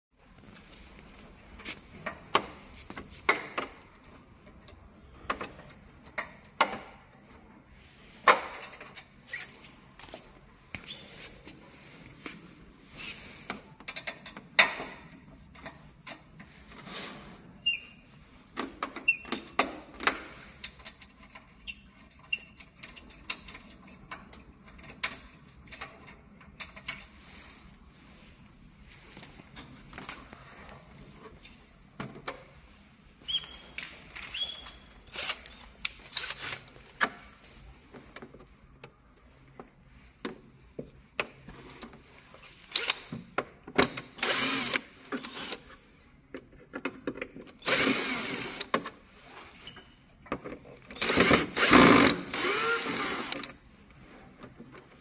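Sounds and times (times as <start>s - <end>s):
plastic squeaks: 33.3s - 37.0s.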